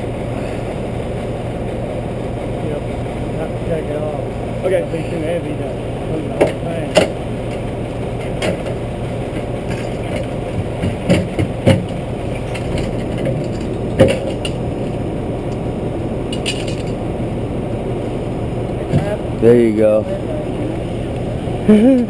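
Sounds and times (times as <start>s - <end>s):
steady motor hum: 0.0s - 22.0s
sharp knocks and clanks of pipe: 6.4s - 7.6s, 8.2s - 8.8s, 9.4s - 14.6s.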